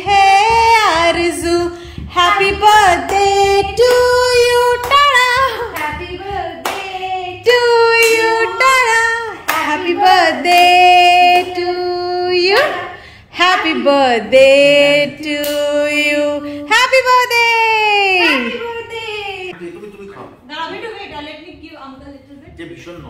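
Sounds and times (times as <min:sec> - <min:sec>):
woman singing: 0:00.0 - 0:19.5
hands clapping: 0:04.8 - 0:06.0, 0:06.6 - 0:06.9, 0:09.5 - 0:09.7.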